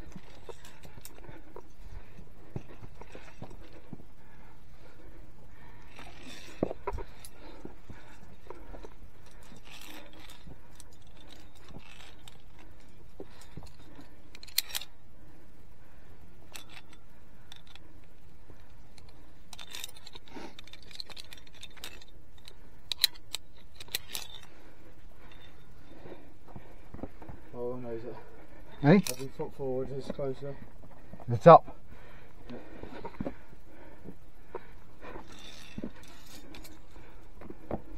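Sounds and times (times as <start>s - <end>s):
carabiners clinking on steel cable: 0.0s - 15.3s, 16.4s - 37.9s.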